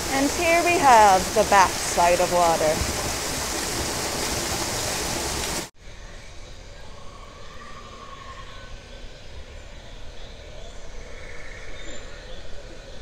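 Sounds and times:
waterfall pouring: 0.0 - 5.7.

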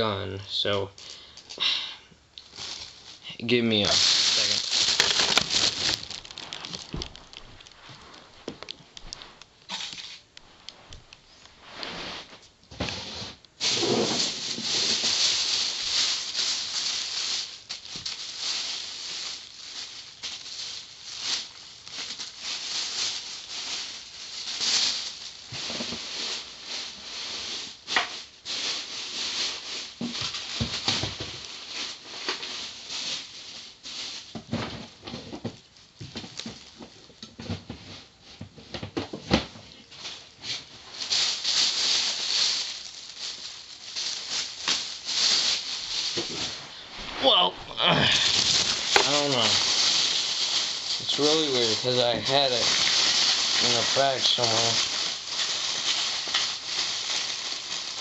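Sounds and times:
plastic toy pieces rattling: 3.8 - 7.6, 48.2 - 58.0.

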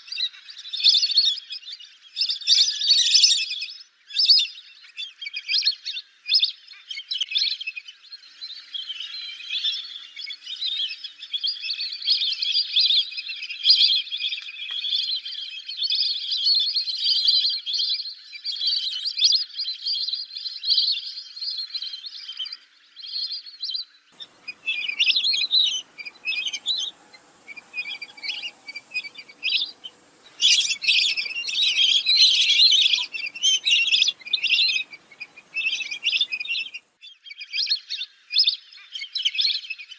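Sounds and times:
ducks giving whistled calls: 24.2 - 36.8.

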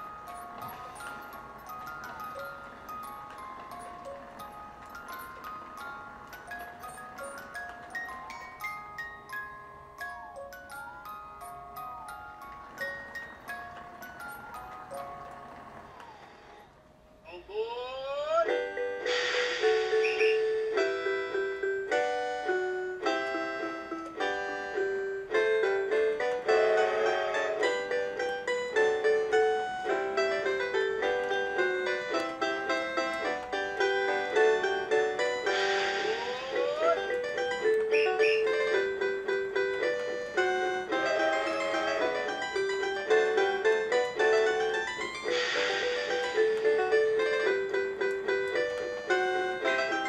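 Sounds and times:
electronic toy melody: 0.0 - 16.6, 18.4 - 50.0
hiss: 19.0 - 20.8, 35.4 - 36.5, 45.3 - 46.5.

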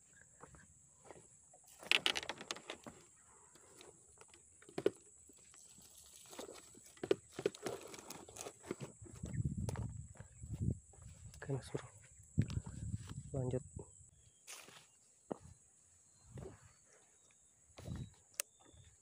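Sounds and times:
grass and cloth bag rustling: 5.6 - 9.9.

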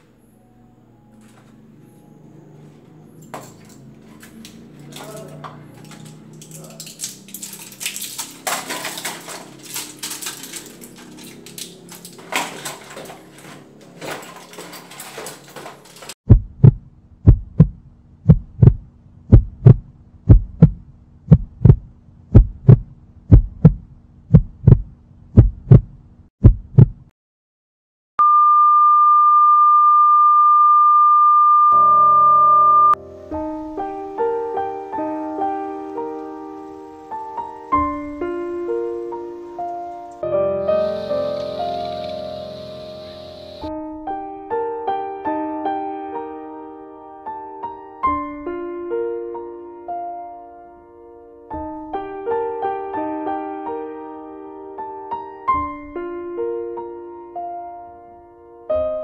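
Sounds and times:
soft piano music: 0.0 - 15.2, 31.8 - 59.0
hands handling small objects: 3.4 - 16.2
heartbeat thumps: 16.3 - 27.1
steady high tone: 28.2 - 33.0.

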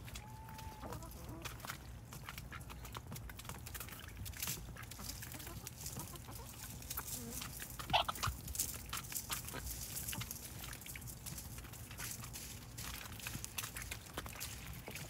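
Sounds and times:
hens clucking: 0.0 - 10.4
birds pecking at leaves: 0.0 - 15.0.

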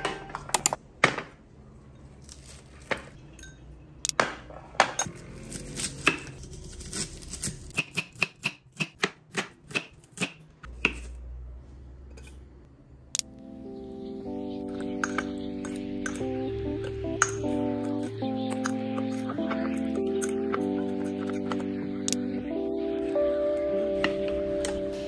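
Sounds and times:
knife chopping on cutting board: 7.7 - 11.1.

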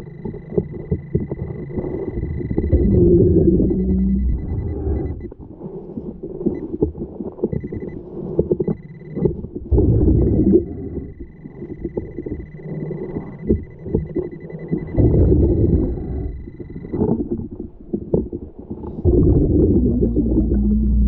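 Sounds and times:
high-pitched beep: 0.1 - 5.3, 10.0 - 17.0
underwater waterfall rumble: 18.8 - 21.0.

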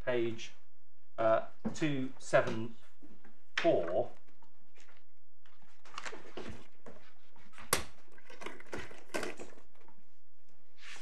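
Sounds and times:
paper rustling and pages turning: 2.9 - 11.0.

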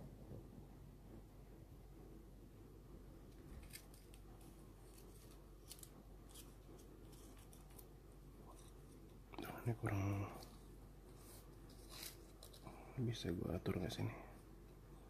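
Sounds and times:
faint scrapes and clicks: 3.3 - 9.6, 10.3 - 12.8.

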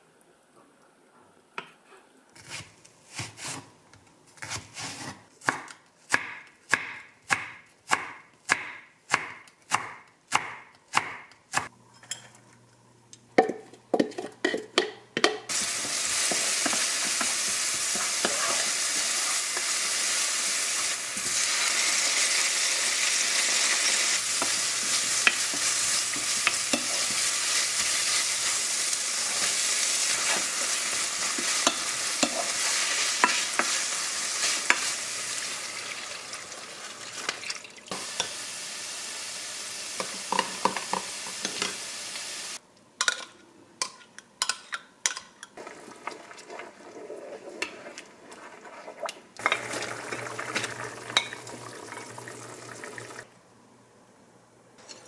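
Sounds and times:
knife chopping on wooden board: 4.4 - 11.3
wooden spatula stirring in pan: 15.5 - 22.3, 23.4 - 35.0
onion sizzling in hot oil: 15.5 - 42.6, 49.4 - 53.3.

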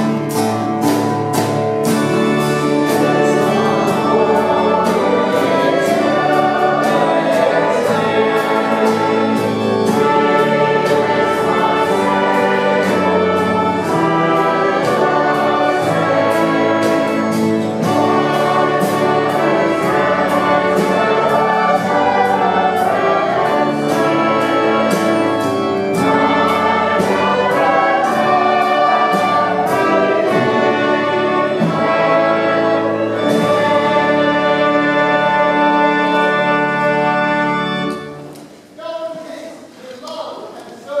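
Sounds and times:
brass ensemble playing: 0.0 - 38.8
choir singing a hymn: 1.8 - 38.2.

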